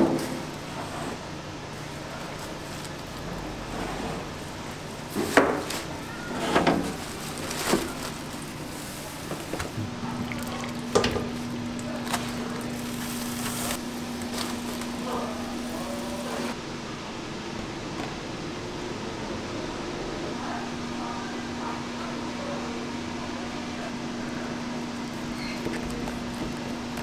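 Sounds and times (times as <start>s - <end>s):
foil crinkling: 1.7s - 3.3s, 6.8s - 9.8s, 10.6s - 16.2s.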